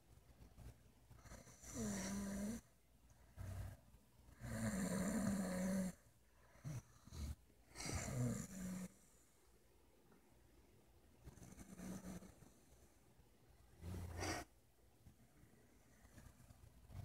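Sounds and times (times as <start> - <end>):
person snoring: 1.3 - 2.6.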